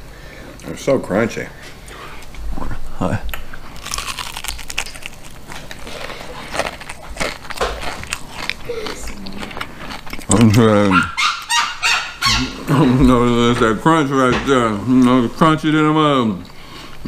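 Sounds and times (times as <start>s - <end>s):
crunchy fried fish being chewed: 3.3s - 10.9s.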